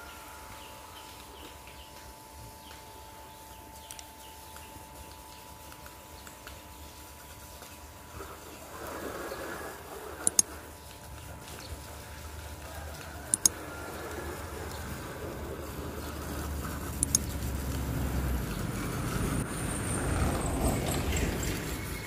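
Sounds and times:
hose water spraying: 0.0s - 22.0s
sharp double clicks: 10.2s - 10.5s, 13.3s - 13.6s, 16.9s - 17.4s.

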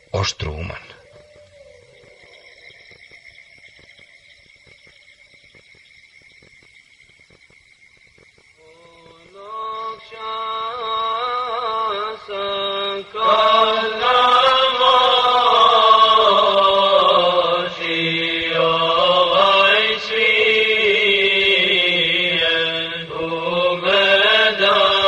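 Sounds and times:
person chanting melodically: 0.0s - 2.5s, 8.6s - 25.0s.

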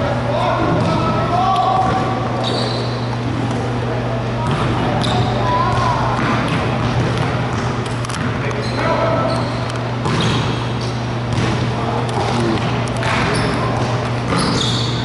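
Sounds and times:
basketball bouncing on hardwood floor: 10.0s - 10.6s.

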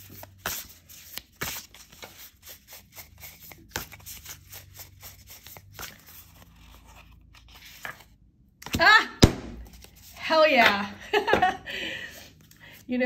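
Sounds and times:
cards being shuffled: 0.0s - 8.8s, 9.6s - 10.7s.

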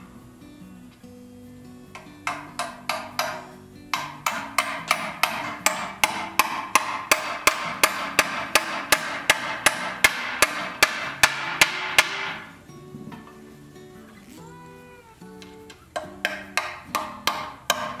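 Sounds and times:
hammer blows on metal rivet: 1.9s - 12.5s.

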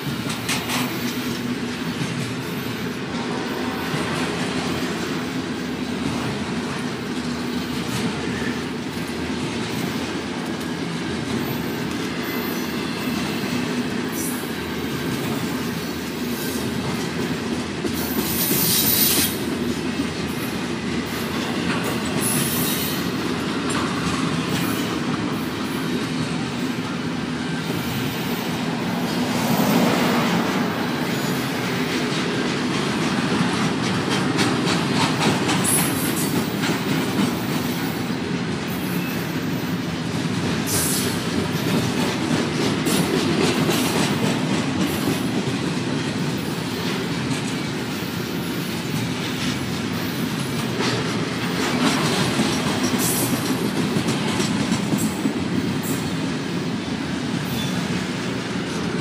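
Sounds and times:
steel wheels rumbling on rail: 0.0s - 59.0s
high wheel squeal: 57.4s - 57.9s.

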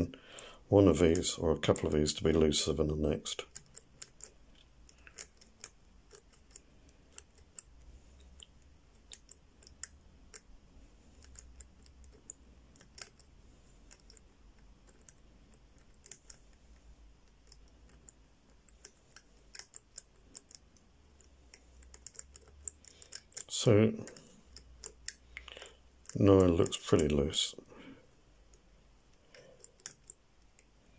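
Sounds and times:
padlock wheels clicking: 3.4s - 10.5s, 11.2s - 16.4s, 17.3s - 27.1s.

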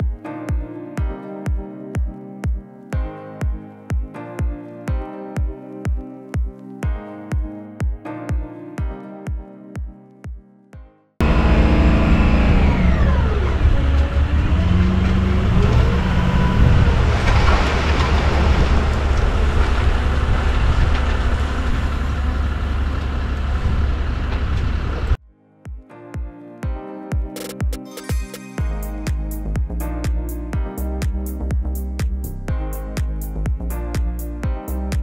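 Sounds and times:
dump truck engine rumbling: 11.2s - 25.2s.

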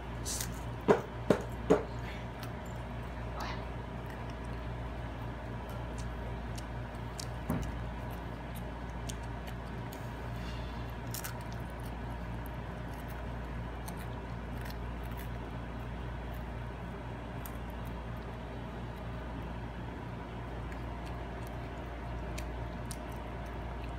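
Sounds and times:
child crunching a cracker: 4.0s - 19.2s.

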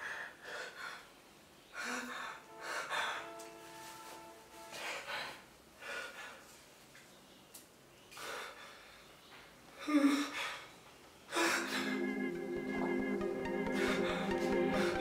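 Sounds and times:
man breathing heavily: 0.0s - 3.6s, 4.6s - 6.7s, 8.1s - 12.2s, 13.4s - 15.0s
background music tones: 2.5s - 4.9s, 11.4s - 15.0s.

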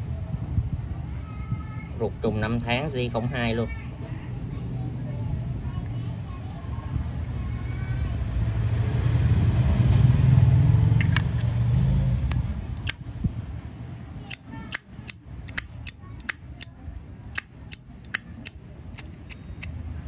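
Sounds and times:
lighter lid snapping open and shut: 11.0s - 11.5s, 12.2s - 13.0s, 14.3s - 16.8s, 17.4s - 19.6s.

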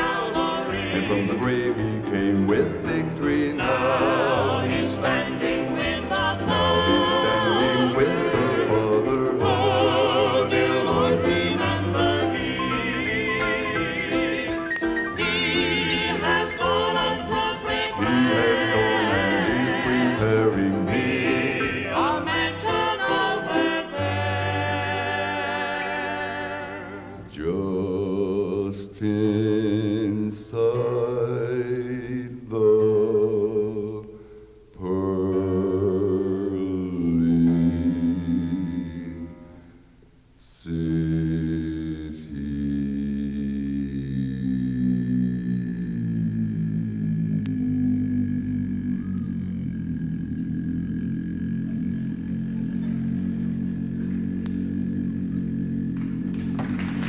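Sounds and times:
male vocal quartet singing gospel: 0.0s - 39.7s, 40.4s - 57.0s.

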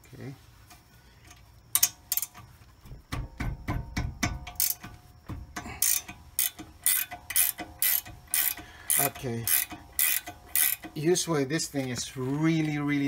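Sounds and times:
ratchet wrench clicking: 1.3s - 2.4s, 4.2s - 11.3s.

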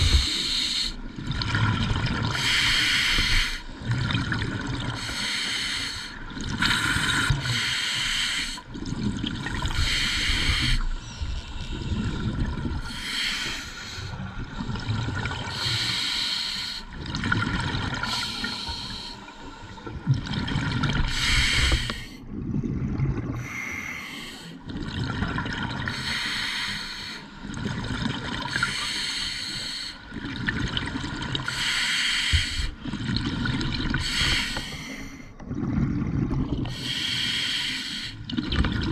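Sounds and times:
exhaled bubbles rumbling: 0.0s - 0.4s, 1.0s - 5.1s, 6.2s - 7.6s, 8.6s - 13.2s, 13.9s - 15.8s, 16.9s - 18.9s, 19.6s - 23.7s, 24.6s - 26.0s, 27.4s - 28.8s, 30.1s - 31.5s, 32.4s - 36.9s, 38.2s - 38.9s
regulator hissing inhale: 0.0s - 1.0s, 2.4s - 3.7s, 5.0s - 8.6s, 9.8s - 11.1s, 12.9s - 14.2s, 15.5s - 16.9s, 18.1s - 19.8s, 21.1s - 22.2s, 23.4s - 24.6s, 25.9s - 27.3s, 28.7s - 30.0s, 31.5s - 32.8s, 34.0s - 35.3s, 36.7s - 38.3s.

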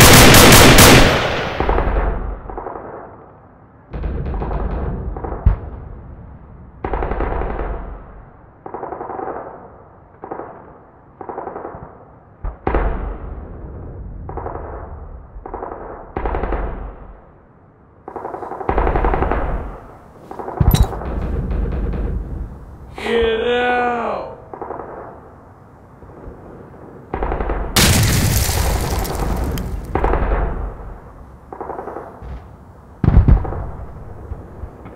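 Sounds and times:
automatic gunfire bursts: 0.0s - 1.4s
single sharp gunshots: 27.8s - 30.6s.

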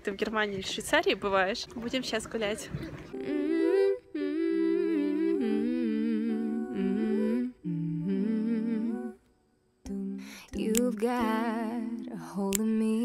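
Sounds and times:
voices humming in harmony: 3.1s - 13.0s.

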